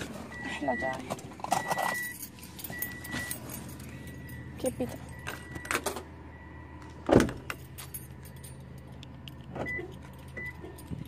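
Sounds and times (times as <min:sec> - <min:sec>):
low steady hum: 0:00.0 - 0:11.0
keys jingling: 0:01.4 - 0:05.5, 0:07.4 - 0:11.0
car door shutting: 0:07.0 - 0:07.5.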